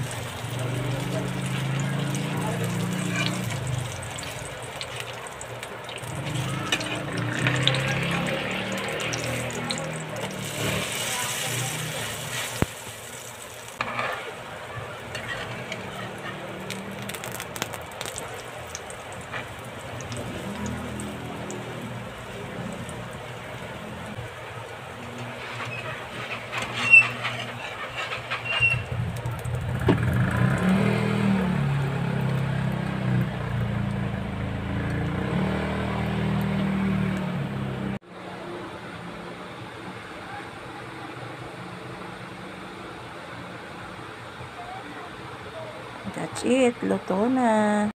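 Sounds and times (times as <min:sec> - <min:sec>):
omelette sizzling in hot oil: 0:00.0 - 0:36.8
motor engine running: 0:27.7 - 0:38.0.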